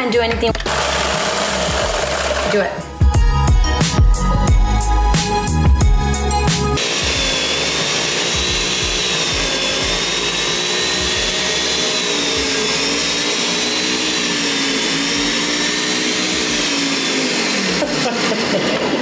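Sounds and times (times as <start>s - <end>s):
food processor motor running: 0.5s - 2.8s, 6.8s - 19.0s.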